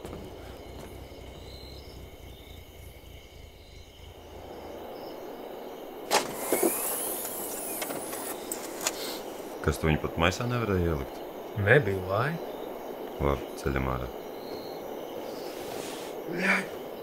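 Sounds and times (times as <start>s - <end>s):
distant traffic rumble: 0.0s - 17.0s
car boot unlatching: 6.1s - 9.2s.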